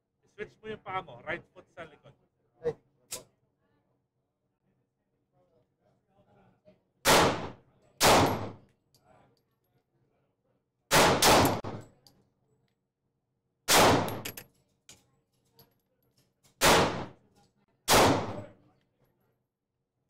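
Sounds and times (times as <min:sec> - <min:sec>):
echoing gunshots: 0:07.1 - 0:08.6, 0:10.9 - 0:11.8, 0:13.7 - 0:14.2, 0:16.6 - 0:17.2, 0:17.9 - 0:18.5
faint clinks: 0:14.2 - 0:16.6.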